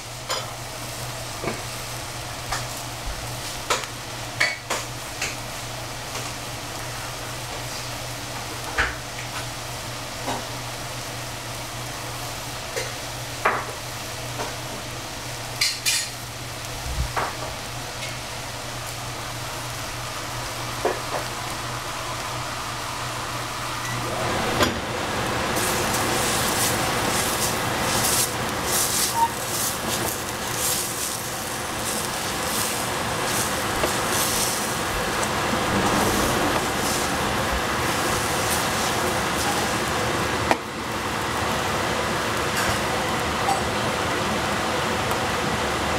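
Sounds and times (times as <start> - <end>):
vegetables sizzling in a pan: 0.0 - 45.9
wooden spatula scraping a pan: 25.6 - 39.6.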